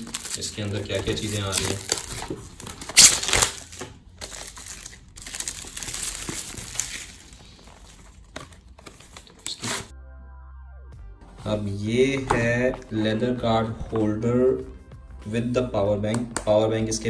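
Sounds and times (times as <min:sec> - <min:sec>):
plastic wrap crinkling: 0:00.0 - 0:09.9.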